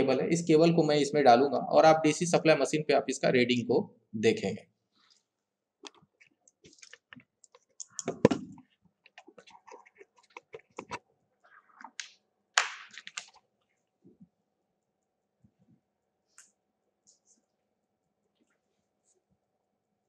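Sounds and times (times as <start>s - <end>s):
small clicks taps and scrapes: 5.8s - 12.2s.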